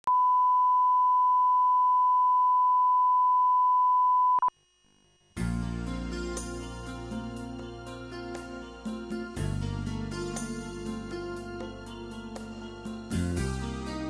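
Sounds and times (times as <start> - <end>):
music: 5.4 - 14.0.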